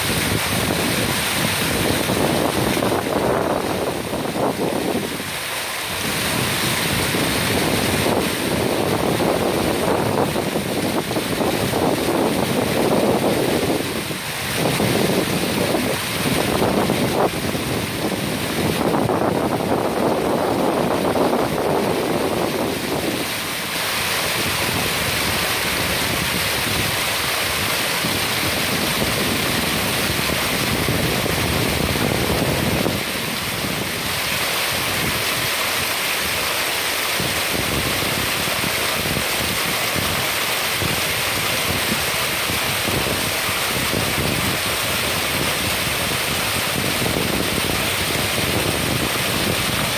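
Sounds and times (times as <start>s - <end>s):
wind buffeting microphone: 0.0s - 35.9s, 37.1s - 49.9s
moving water: 0.0s - 49.9s
wind rushing: 5.9s - 35.5s.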